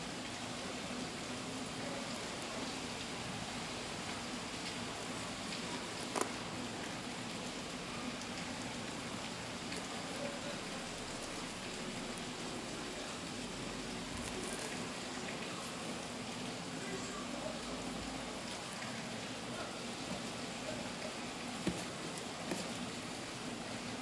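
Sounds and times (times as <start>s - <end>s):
sneaker being handled: 21.6s - 22.8s.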